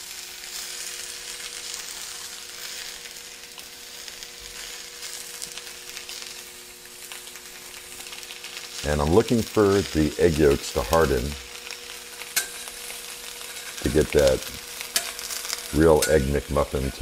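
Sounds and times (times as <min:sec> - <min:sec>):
eggs and bacon sizzling on griddle: 0:00.0 - 0:17.0.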